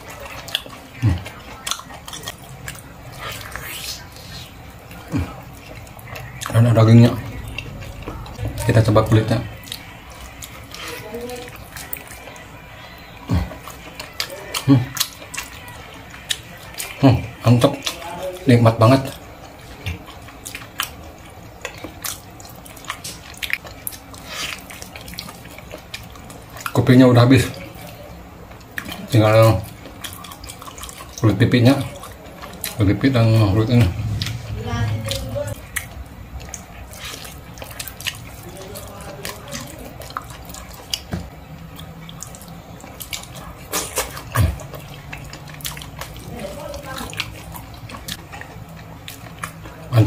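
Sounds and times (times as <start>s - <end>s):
wet chewing: 0.0s - 50.0s
mouth clicks and smacks: 39.2s - 46.2s.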